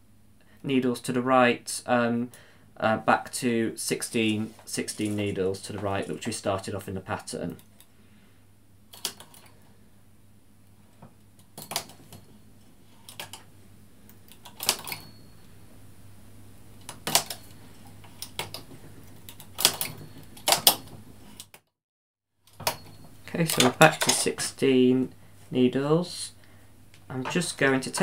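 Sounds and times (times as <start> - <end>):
faint steady hum: 0.0 - 21.5, 22.4 - 28.0
knitting machine needles clicking: 14.3 - 15.1, 16.8 - 21.6.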